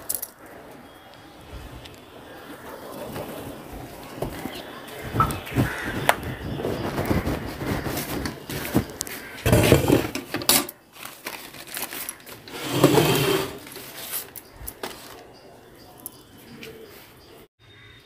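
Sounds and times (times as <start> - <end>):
handling rustling and bumps: 2.8 - 15.3
pail handle rattling and clinking: 8.8 - 10.8, 11.5 - 15.1.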